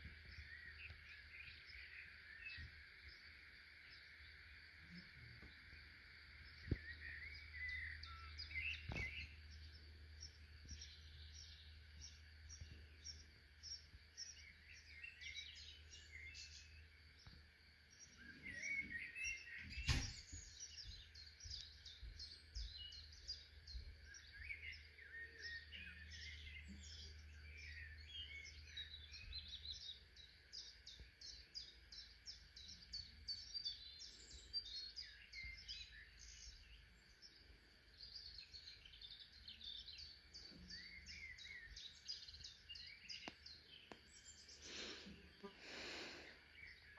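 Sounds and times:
birds singing and chirping: 0:00.0 - 0:46.9.

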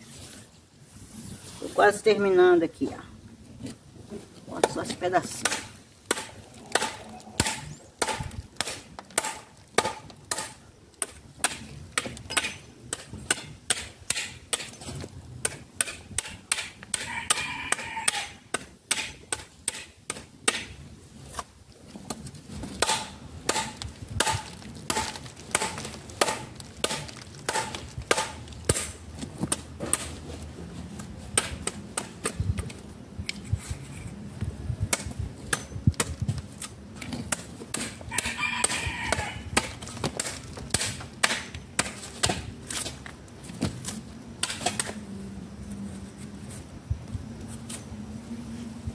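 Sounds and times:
hand tool chopping bark off log: 0:04.6 - 0:21.5, 0:22.6 - 0:30.2, 0:31.3 - 0:32.4, 0:34.9 - 0:45.0.

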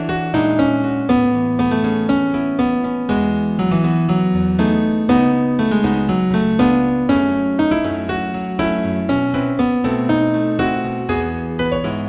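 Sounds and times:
keyboard melody: 0:00.0 - 0:12.0.

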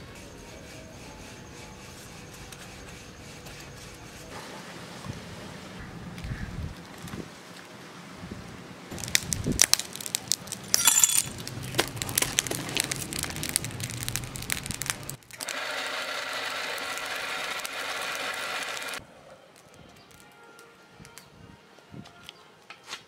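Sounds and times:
furnace fire rushing: 0:08.9 - 0:19.0
metal scrap clinking and rattling: 0:10.0 - 0:12.3.

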